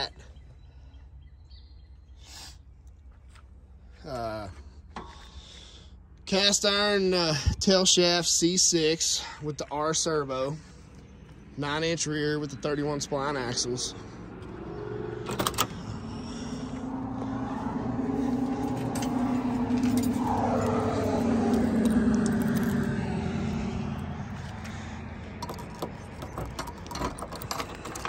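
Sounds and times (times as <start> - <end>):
car passing by: 13.0 - 25.4
keys jangling against trunk lock: 15.2 - 15.8, 25.3 - 28.0.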